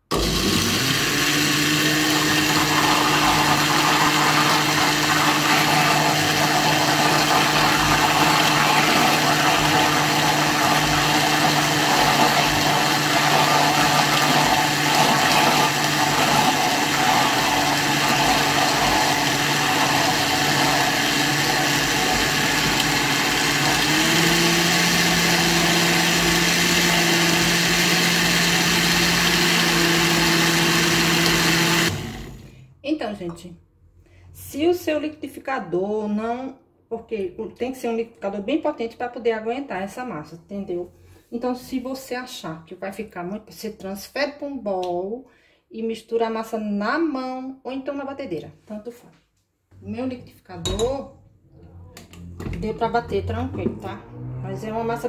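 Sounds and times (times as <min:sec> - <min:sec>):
blender motor running: 0:00.0 - 0:32.5.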